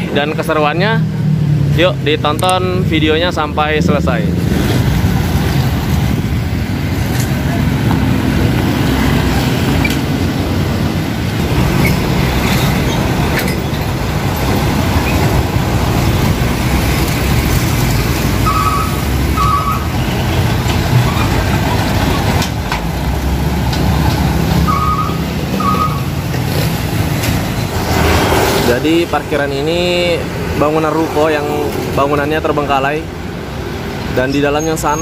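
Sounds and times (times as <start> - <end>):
road traffic engine rumble: 0.0 - 35.0
short high beeps: 18.5 - 19.9, 24.7 - 26.1.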